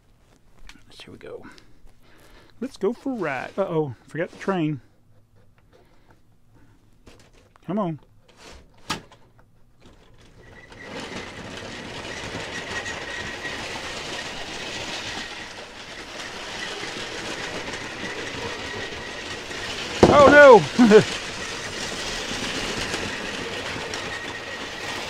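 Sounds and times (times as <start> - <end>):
toy train wheels rattling on track: 9.8 - 25.0.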